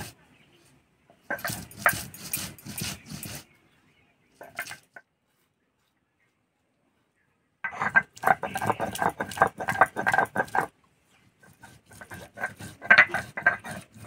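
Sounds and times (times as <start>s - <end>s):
stone grinding on stone slab: 1.2s - 3.5s, 4.4s - 5.0s, 7.7s - 10.7s, 11.4s - 14.0s.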